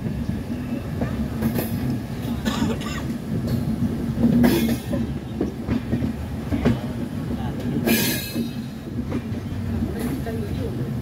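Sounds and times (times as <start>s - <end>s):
train wheels rumbling on track: 0.0s - 11.0s.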